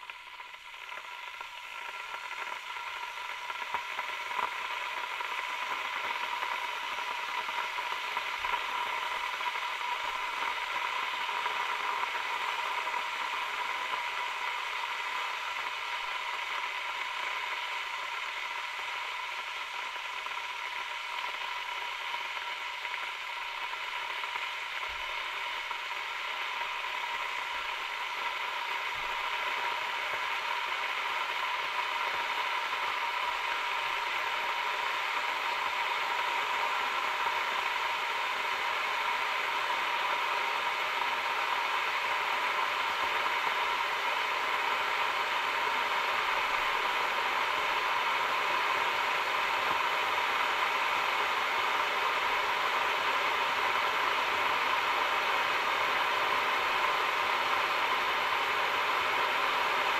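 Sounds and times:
kettle boiling: 0.0s - 59.9s.

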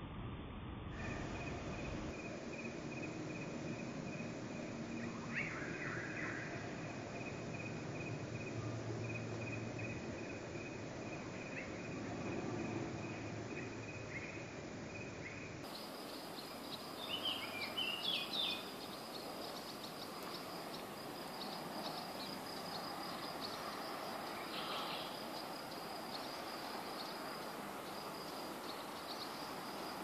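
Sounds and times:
soft hiss: 0.1s - 30.0s
insects chirping: 1.0s - 30.0s
bird calls: 15.2s - 30.0s.

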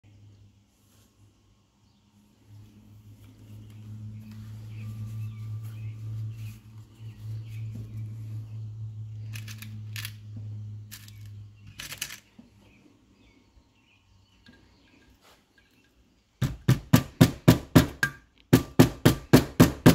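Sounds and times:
steady low hum: 0.1s - 19.8s.

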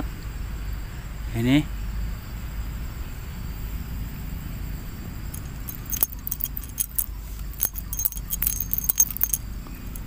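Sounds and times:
light metallic clicks and clinks: 5.3s - 10.0s.

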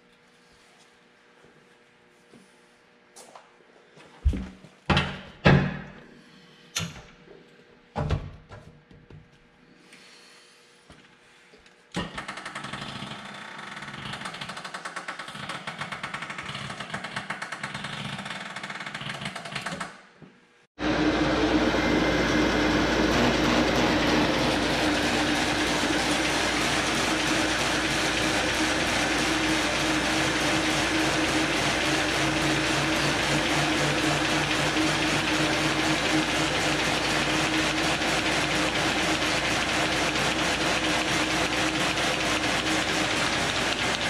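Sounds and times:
paper folding machine running: 20.8s - 44.0s
machine rattling: 23.1s - 44.0s.

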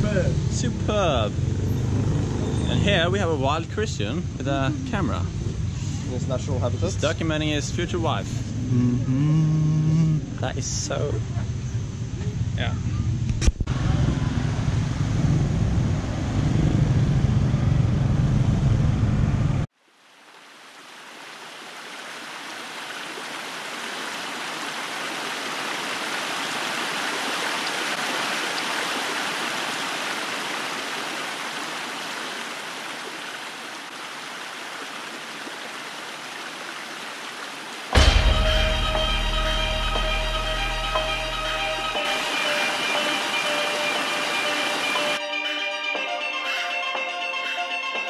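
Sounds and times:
flowing water rushing: 19.8s - 45.2s
loud low rumble: 38.0s - 42.0s.

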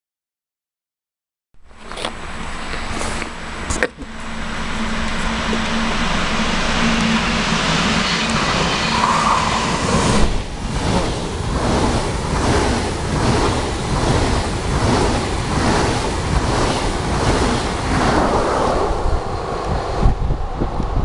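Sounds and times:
train passing at speed: 1.7s - 21.0s
wind buffeting microphone: 4.8s - 21.0s.

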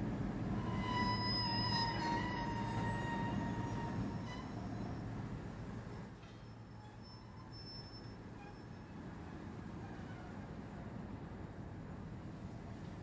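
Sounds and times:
train wagons rumbling past: 0.0s - 7.6s
high-pitched whine: 0.5s - 11.2s
faint metallic squeals: 0.5s - 11.6s.

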